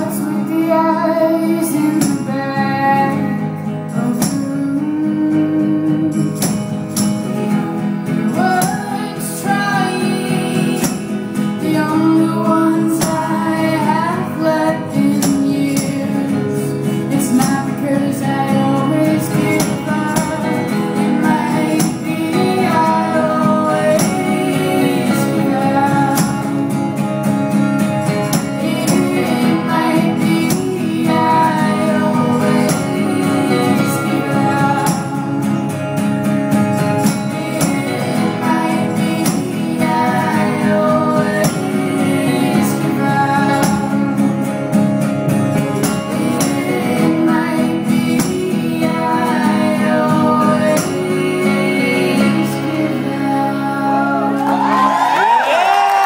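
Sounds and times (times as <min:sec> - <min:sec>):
second woman singing: 0:00.0 - 0:06.7, 0:08.1 - 0:27.0, 0:28.0 - 0:35.7, 0:36.8 - 0:44.6, 0:45.8 - 0:56.0
woman singing lead vocal: 0:00.0 - 0:44.7, 0:45.6 - 0:56.0
strummed acoustic guitar: 0:00.0 - 0:56.0.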